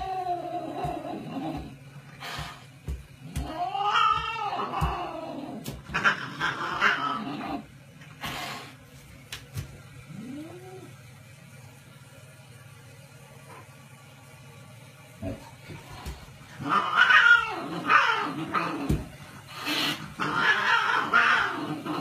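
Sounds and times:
cat yowling: 0:03.4 - 0:07.4, 0:16.6 - 0:18.9, 0:20.2 - 0:21.8
cat hissing: 0:16.6 - 0:22.0.

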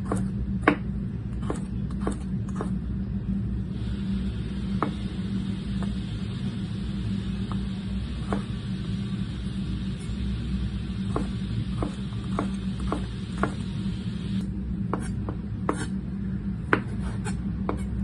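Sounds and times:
knife chopping on wooden board: 0:00.0 - 0:02.7, 0:04.8 - 0:05.0, 0:08.2 - 0:08.5, 0:11.1 - 0:13.6, 0:14.9 - 0:15.9, 0:16.7 - 0:18.0
low hum: 0:00.0 - 0:18.0.

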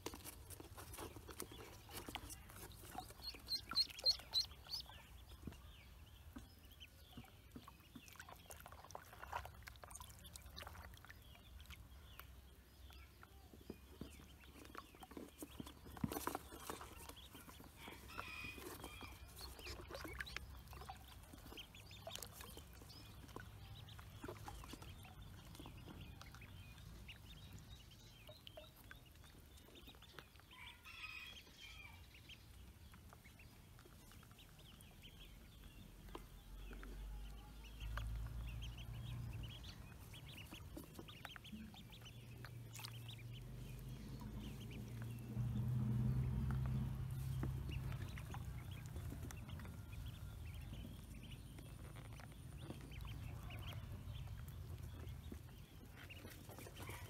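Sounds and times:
ducklings peeping: 0:00.0 - 0:57.0
low rumble: 0:41.8 - 0:56.7.

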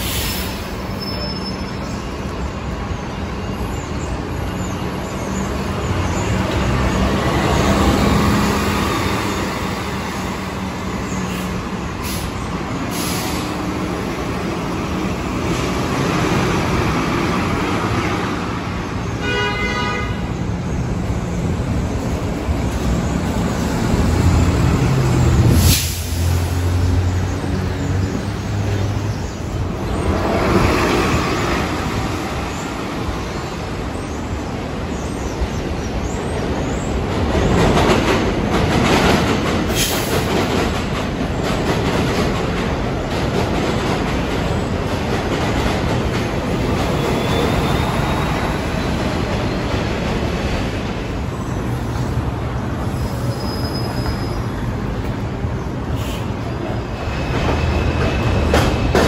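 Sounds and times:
air brakes hissing: 0:00.0 - 0:01.3, 0:11.3 - 0:13.7, 0:25.5 - 0:26.6, 0:39.7 - 0:40.3, 0:55.9 - 0:56.5.

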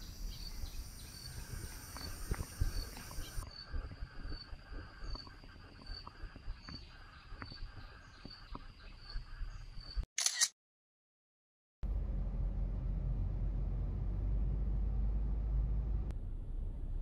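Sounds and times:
insect chirping: 0:00.0 - 0:10.0
car road noise: 0:11.8 - 0:17.0
low rumble: 0:11.8 - 0:17.0.

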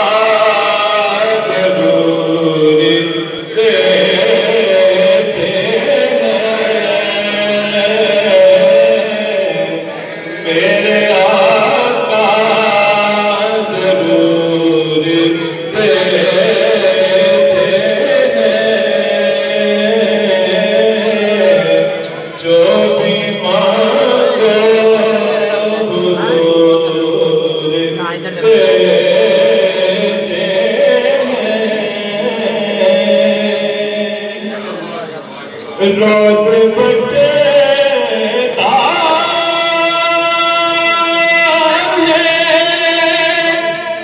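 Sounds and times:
man chanting melodically: 0:00.0 - 0:44.0.

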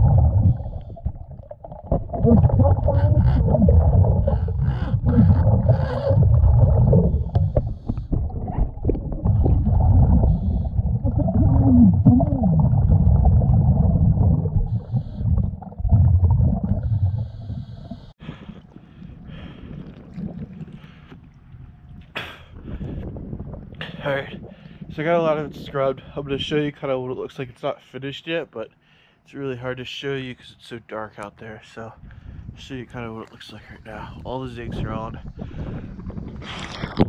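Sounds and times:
water splashing: 0:00.0 - 0:22.1
underwater bubbles rumbling: 0:00.0 - 0:25.7.

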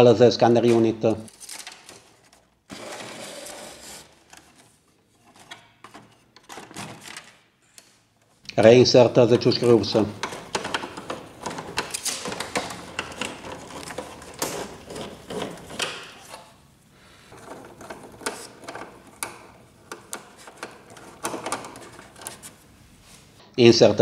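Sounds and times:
plastic printer parts clicking: 0:04.2 - 0:07.9, 0:09.4 - 0:16.5, 0:17.3 - 0:22.5.

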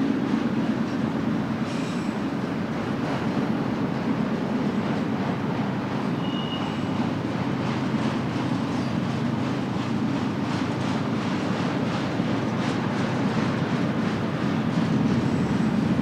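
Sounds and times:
train wheels rumbling on track: 0:00.0 - 0:16.0
high wheel squeal: 0:06.1 - 0:07.1.

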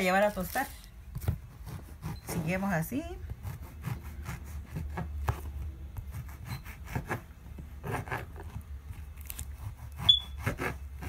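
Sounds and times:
knife sawing through crusty bread: 0:01.5 - 0:02.4, 0:03.4 - 0:05.4, 0:06.1 - 0:08.6, 0:09.2 - 0:11.0.

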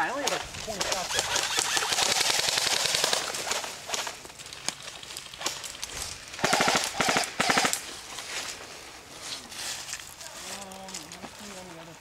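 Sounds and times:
airsoft gun shots: 0:06.4 - 0:07.8.

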